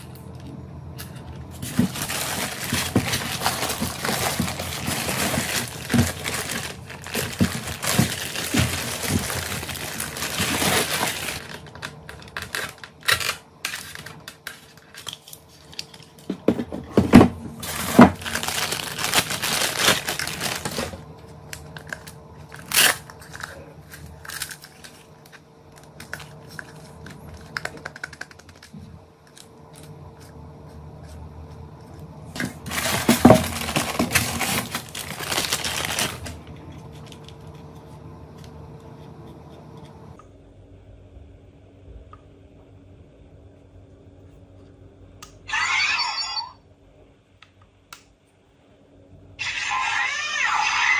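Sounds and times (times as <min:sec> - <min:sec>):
plastic bags crinkling: 0:01.5 - 0:16.2, 0:17.6 - 0:28.5, 0:32.4 - 0:37.2.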